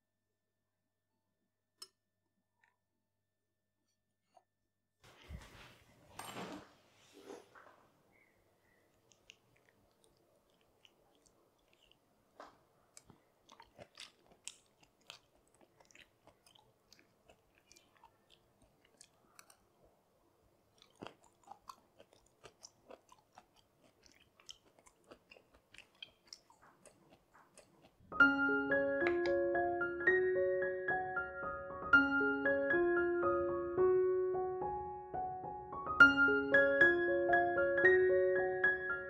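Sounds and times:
quiet chewing with mouth clicks: 0:08.1 - 0:28.1
piano music: 0:28.1 - 0:39.0.

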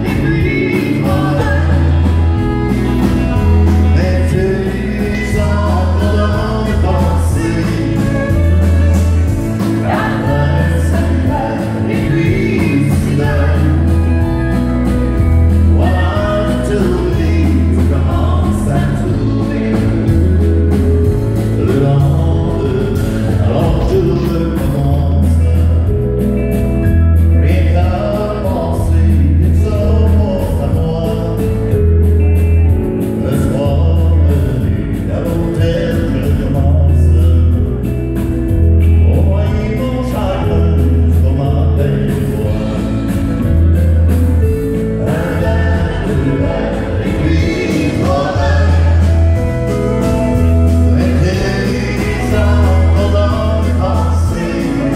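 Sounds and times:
woman singing lead: 0:00.0 - 0:25.6, 0:44.9 - 0:54.9
acoustic guitar: 0:00.0 - 0:54.9
bass line: 0:00.0 - 0:54.9
drums: 0:00.0 - 0:54.9
keyboards: 0:00.0 - 0:54.9.

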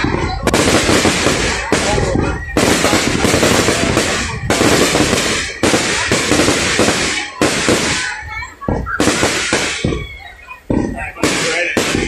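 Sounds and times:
fireworks launches and bursts: 0:00.0 - 0:12.0.

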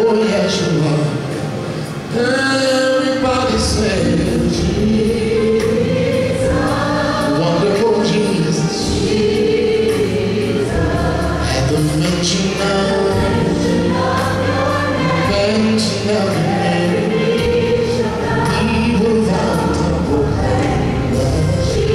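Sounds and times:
gospel choir singing: 0:00.0 - 0:21.9
man singing into a microphone: 0:02.1 - 0:05.6, 0:07.3 - 0:09.0, 0:11.4 - 0:13.6, 0:15.1 - 0:17.5, 0:18.4 - 0:21.9.

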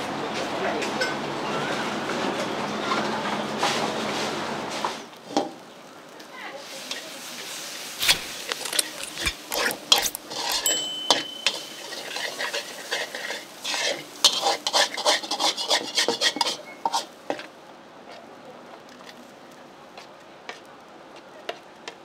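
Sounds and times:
food sizzling: 0:05.0 - 0:22.0
metal spatula scraping a wok: 0:06.8 - 0:17.5.

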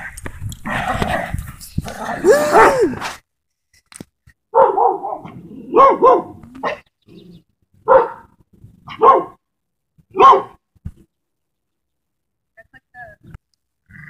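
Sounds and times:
dog barking: 0:02.5 - 0:02.8, 0:04.5 - 0:06.8, 0:07.8 - 0:08.3, 0:08.9 - 0:09.4, 0:10.1 - 0:10.6.

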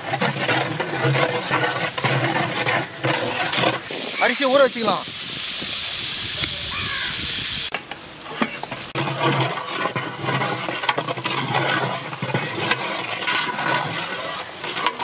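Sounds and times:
metal paddle scraping pot: 0:00.0 - 0:05.0, 0:09.0 - 0:15.0
onions sizzling in oil: 0:03.9 - 0:07.7.

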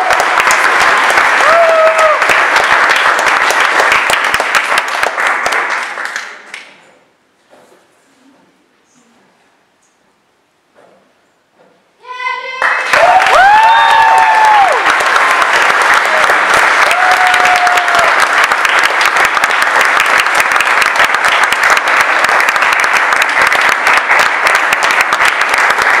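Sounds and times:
audience applauding: 0:00.0 - 0:06.6, 0:12.6 - 0:26.0
crowd whooping: 0:01.4 - 0:02.3, 0:12.9 - 0:15.0, 0:16.0 - 0:18.5.

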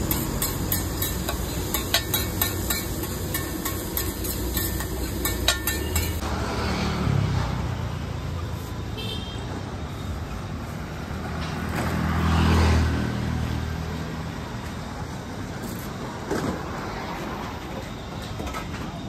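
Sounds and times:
steady road traffic: 0:00.0 - 0:19.0
vehicle passing close by: 0:06.0 - 0:08.4, 0:11.1 - 0:14.3.

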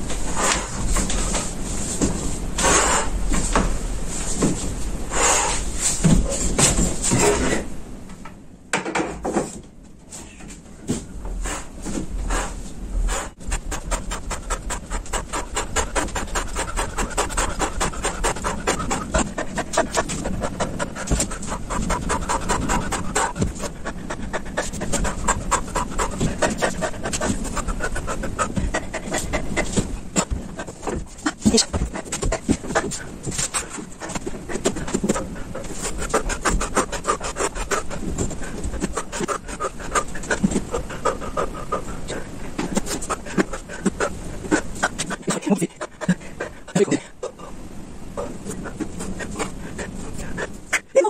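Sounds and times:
man panting hard: 0:11.4 - 0:47.6, 0:48.2 - 0:51.0.

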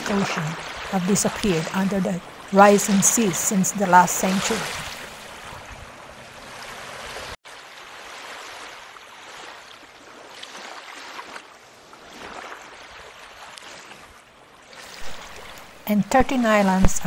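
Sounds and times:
running water: 0:00.0 - 0:07.9.

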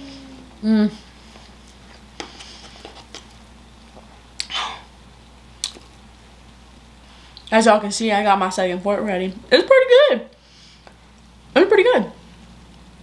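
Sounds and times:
person humming: 0:00.0 - 0:01.1.

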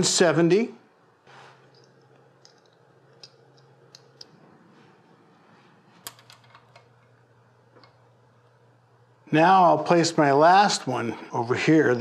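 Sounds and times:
small metal clicks: 0:01.7 - 0:04.3.

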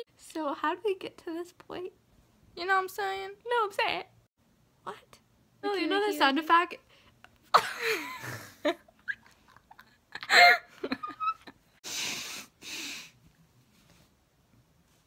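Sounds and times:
woman wheezing: 0:10.2 - 0:10.8
hissing exhalations: 0:11.8 - 0:13.2.

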